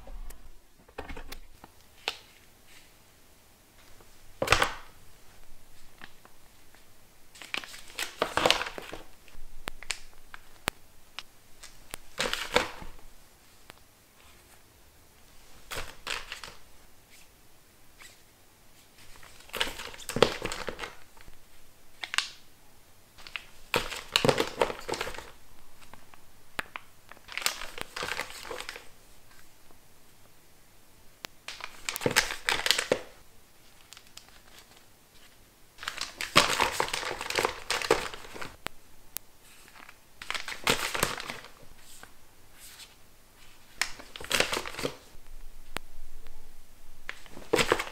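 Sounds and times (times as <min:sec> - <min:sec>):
foil sachets crinkling: 0:07.4 - 0:10.6, 0:23.2 - 0:28.9, 0:31.5 - 0:34.8, 0:35.8 - 0:38.6, 0:39.5 - 0:42.1, 0:43.5 - 0:45.2, 0:47.1 - 0:47.9.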